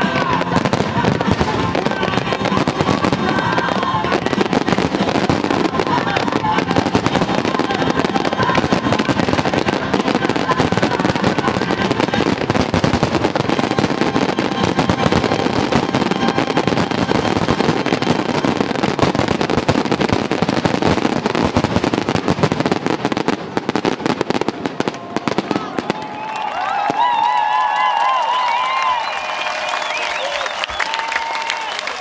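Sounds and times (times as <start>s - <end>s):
fireworks cracking and banging: 0.0s - 32.0s.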